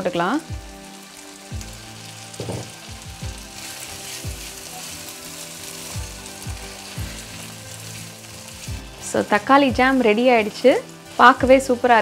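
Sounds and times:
jam sizzling in pan: 0:00.0 - 0:12.0
spoon knocking against pan: 0:02.4 - 0:02.8.

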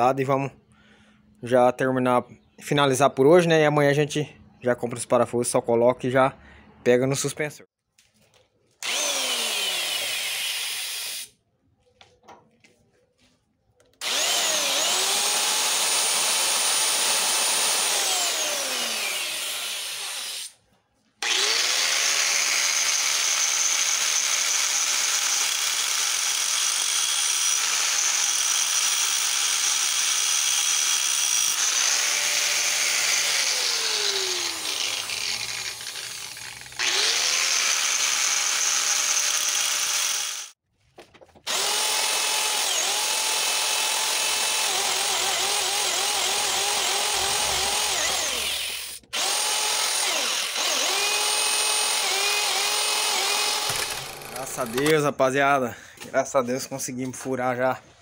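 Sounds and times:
electric drill boring steel: 0:08.8 - 0:11.3, 0:14.0 - 0:20.6, 0:21.2 - 0:40.6, 0:41.5 - 0:54.9.

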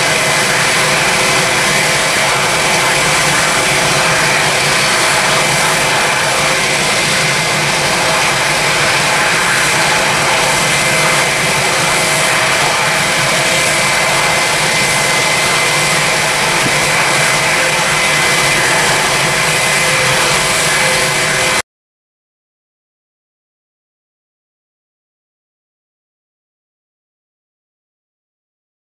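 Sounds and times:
jet engines running with whine: 0:00.0 - 0:21.6.

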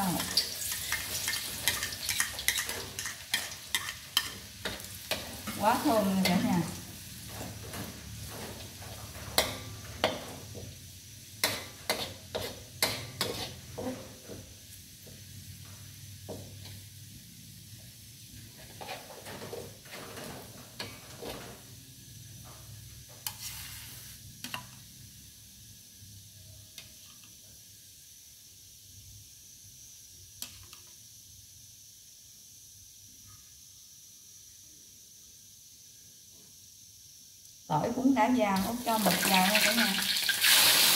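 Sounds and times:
garlic sizzling in oil: 0:00.0 - 0:40.9
metal spatula scraping wok: 0:00.1 - 0:10.6, 0:11.4 - 0:14.3, 0:18.5 - 0:21.6, 0:23.2 - 0:24.3.

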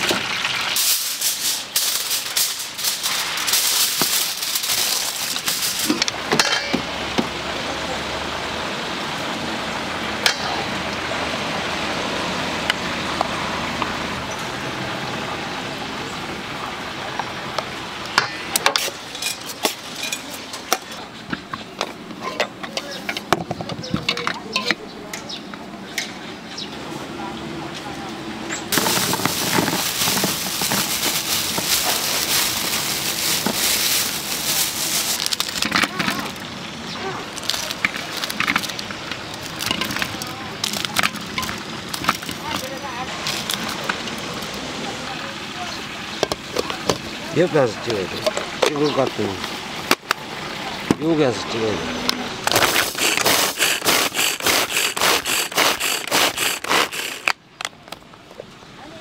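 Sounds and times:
hot oil sizzling and crackling: 0:00.0 - 0:14.9, 0:28.7 - 0:50.9, 0:52.4 - 0:57.4
rhythmic scraping strokes: 0:52.6 - 0:57.3.

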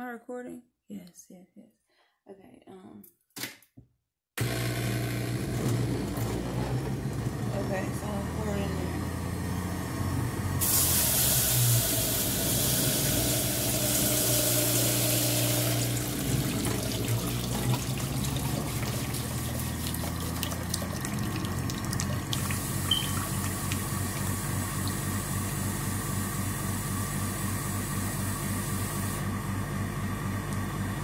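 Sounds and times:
juicer motor hum: 0:04.4 - 0:31.0
water streaming into metal bowl: 0:10.6 - 0:25.7.

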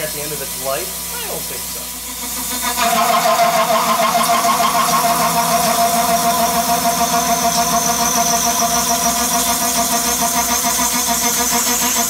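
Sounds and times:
milling cutter whine: 0:00.0 - 0:12.0.

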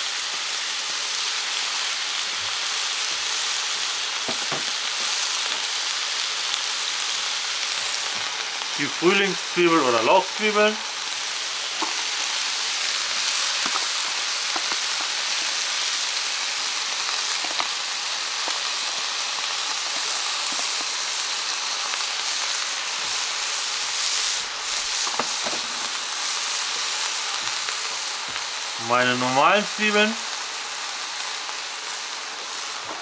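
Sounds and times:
meat frying in a wok: 0:00.0 - 0:33.0.

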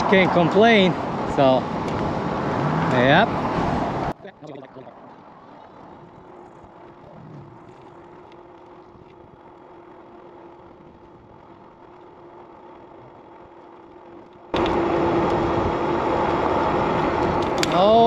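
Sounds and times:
tyre noise: 0:05.0 - 0:18.0
electric bike motor whine: 0:05.1 - 0:18.0
wind noise on microphone: 0:05.9 - 0:07.8.

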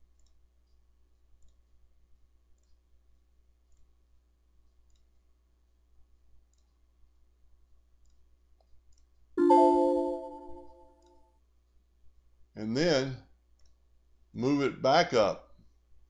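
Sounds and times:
faint computer mouse clicks: 0:00.0 - 0:01.8, 0:02.5 - 0:03.0, 0:04.6 - 0:05.2, 0:06.4 - 0:06.9, 0:08.0 - 0:09.2, 0:13.5 - 0:13.8
loud chime-like chord: 0:09.4 - 0:10.8.

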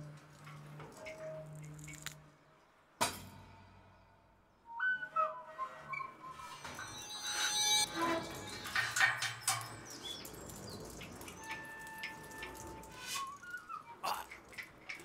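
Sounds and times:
held whistle-like tone: 0:04.6 - 0:08.6
drips: 0:07.9 - 0:15.0.

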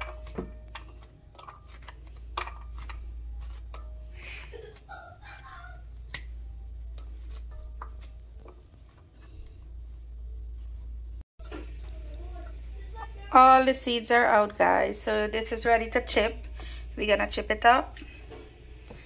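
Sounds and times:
seeds dropping into metal bowl: 0:00.0 - 0:04.0
steady low hum: 0:00.0 - 0:19.0.

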